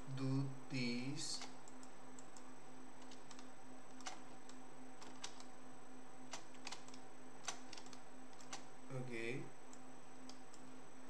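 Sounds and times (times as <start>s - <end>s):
faint steady hum: 0.0s - 11.0s
mouse and keyboard clicks: 1.4s - 5.5s, 6.3s - 8.7s.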